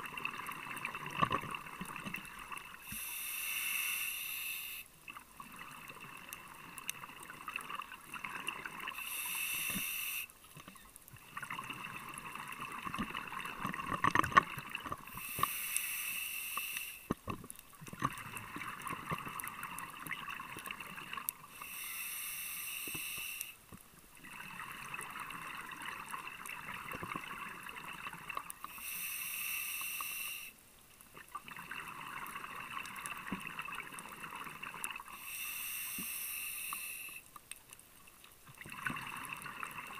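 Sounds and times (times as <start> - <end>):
exhaled air bubbling underwater: 0.0 - 15.9, 16.9 - 23.4, 24.1 - 29.0, 31.1 - 37.2, 38.4 - 39.9
regulator inhalation hiss: 2.8 - 5.0, 8.9 - 10.4, 15.1 - 17.1, 21.5 - 23.6, 28.6 - 30.6, 35.1 - 37.3.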